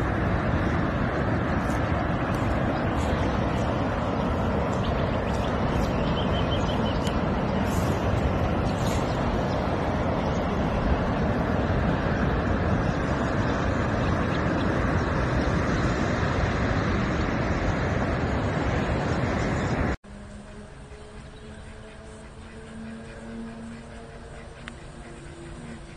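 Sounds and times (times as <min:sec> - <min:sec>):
faint steady tones: 0:00.0 - 0:25.9
wind buffeting microphone: 0:00.0 - 0:25.9.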